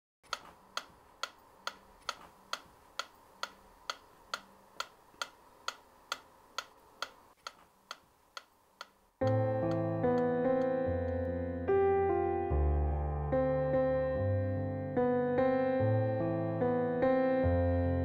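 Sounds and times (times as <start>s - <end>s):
clockwork metronome ticking: 0.3s - 11.2s.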